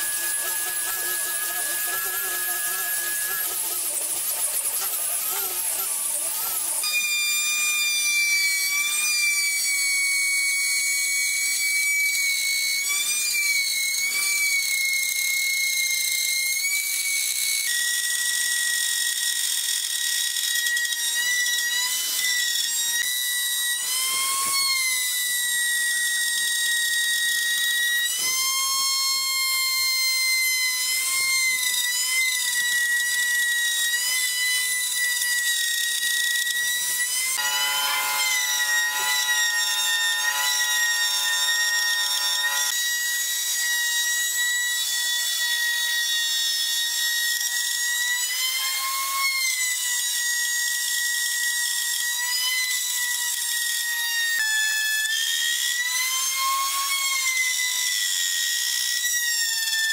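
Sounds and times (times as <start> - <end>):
disc sander whining: 0.0 - 7.2, 30.6 - 42.8
electric router whining: 0.0 - 15.0, 19.5 - 45.7.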